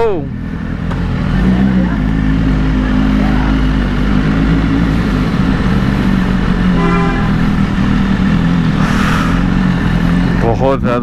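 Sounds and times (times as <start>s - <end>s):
motorcycle engine running: 0.0s - 11.0s
vehicle horn toot: 6.6s - 7.9s.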